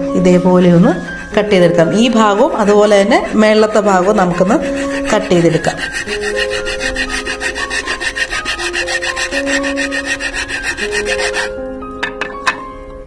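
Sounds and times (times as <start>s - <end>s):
hacksaw sawing through wood: 2.0s - 11.6s.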